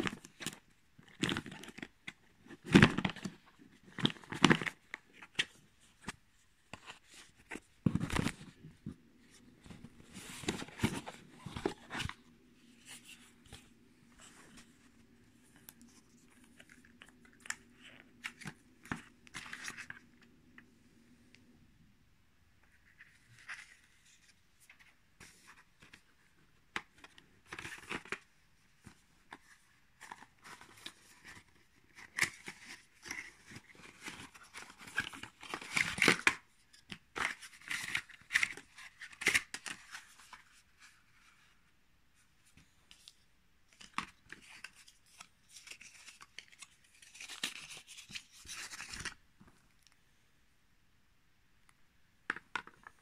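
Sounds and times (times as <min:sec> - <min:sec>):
cardboard packaging rustling: 0:06.7 - 0:20.2.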